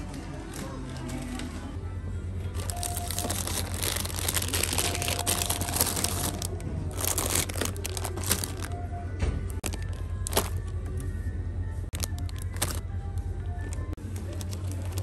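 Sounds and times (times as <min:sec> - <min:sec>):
crinkling crackling noise: 0:02.6 - 0:08.8, 0:09.5 - 0:11.1, 0:11.9 - 0:15.0.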